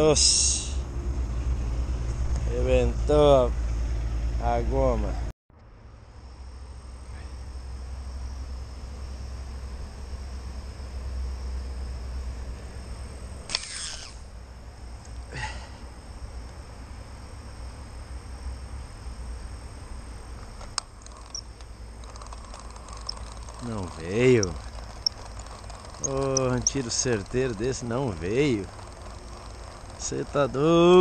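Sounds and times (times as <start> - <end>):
insects buzzing: 5.9 - 31.0
sharp click: 13.5 - 14.2.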